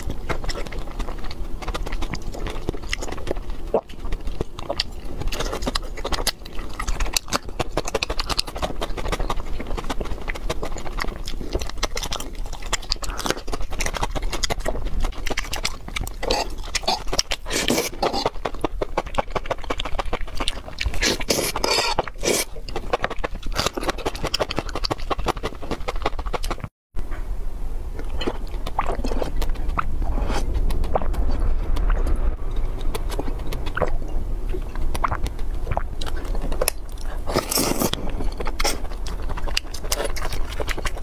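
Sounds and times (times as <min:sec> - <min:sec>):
wet chewing and slurping: 0:00.0 - 0:26.7, 0:27.9 - 0:41.0
sipping: 0:28.0 - 0:41.0.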